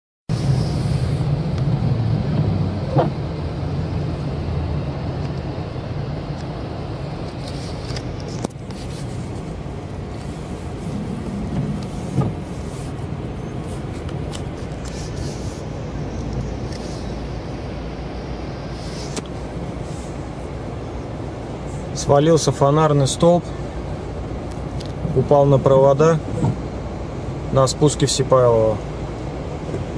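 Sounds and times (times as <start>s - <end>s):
vehicles passing: 0.3s - 29.9s.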